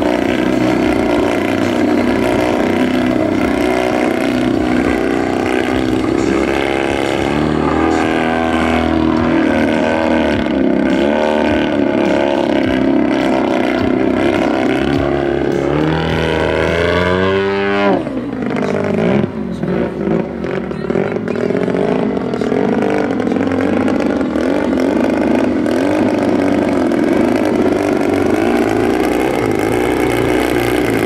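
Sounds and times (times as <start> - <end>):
model plane engine in flight: 0.0 - 31.0.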